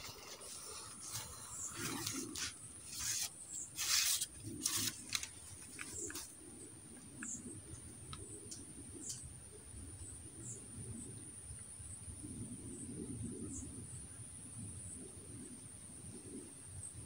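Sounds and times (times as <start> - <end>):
rustling: 0.0 - 6.4.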